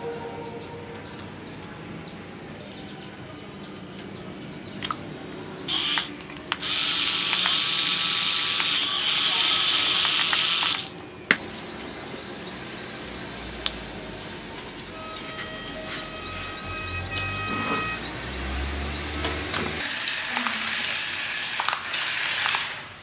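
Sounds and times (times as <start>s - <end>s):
small motors whirring: 5.7s - 10.9s
sharp clicks: 5.7s - 11.9s.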